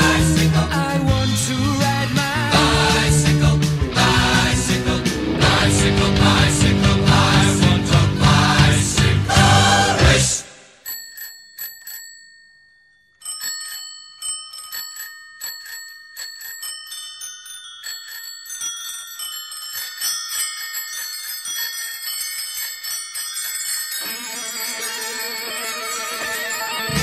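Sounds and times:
bicycle bells ringing: 10.7s - 27.0s.

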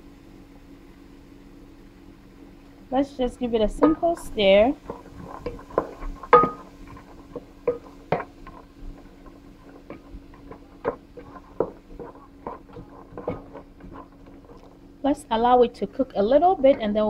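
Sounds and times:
faint steady hum: 0.0s - 17.0s
wooden spoon knocking a pot: 3.7s - 14.7s.

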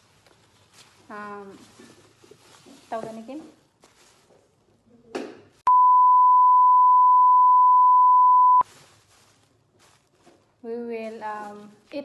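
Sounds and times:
electronic beep: 5.7s - 8.6s.

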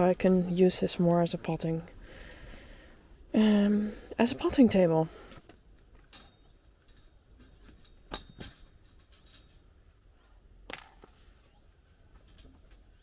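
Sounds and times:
wire netting clinking and rattling: 5.9s - 9.8s.

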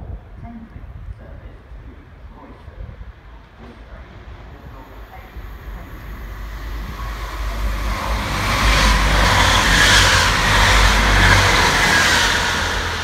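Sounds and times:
train passing at speed: 3.0s - 13.0s.

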